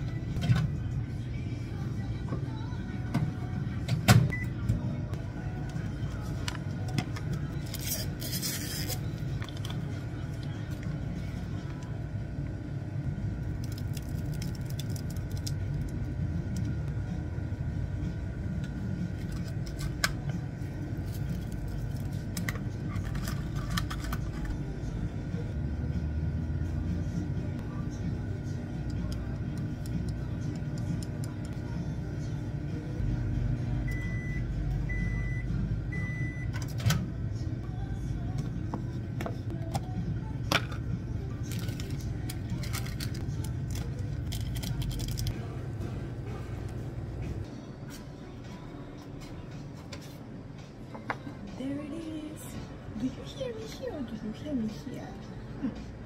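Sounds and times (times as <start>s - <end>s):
microwave humming: 0.0s - 56.0s.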